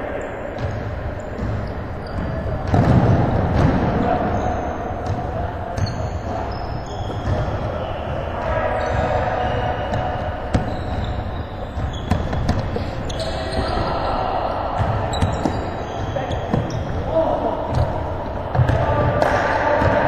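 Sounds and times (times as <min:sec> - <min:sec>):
sneaker squeaks: 0:00.2 - 0:20.0
basketball bouncing: 0:00.6 - 0:04.1, 0:09.9 - 0:13.9, 0:14.8 - 0:17.1, 0:17.7 - 0:20.0.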